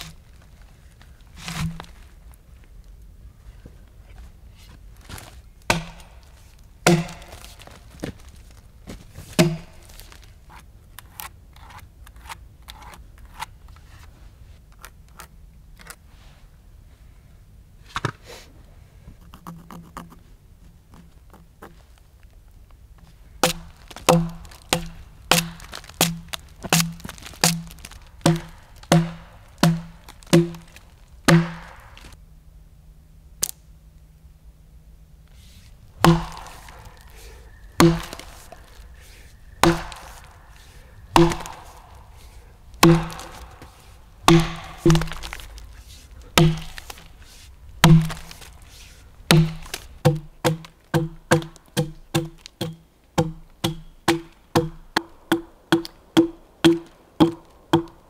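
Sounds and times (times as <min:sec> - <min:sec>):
axe chopping into log: 0:05.7 - 0:06.2, 0:06.8 - 0:07.5, 0:09.4 - 0:09.8, 0:23.4 - 0:30.7, 0:31.3 - 0:32.0, 0:36.0 - 0:36.8, 0:37.8 - 0:38.5, 0:39.6 - 0:40.2, 0:41.1 - 0:41.8, 0:42.8 - 0:43.7, 0:44.3 - 0:45.4, 0:46.4 - 0:47.0, 0:47.8 - 0:48.5, 0:49.3 - 0:58.0.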